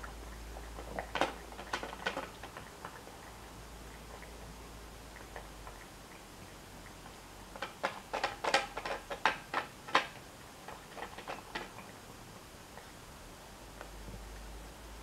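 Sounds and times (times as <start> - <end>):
cat crunching dry food: 0.1 - 3.2, 7.5 - 11.9.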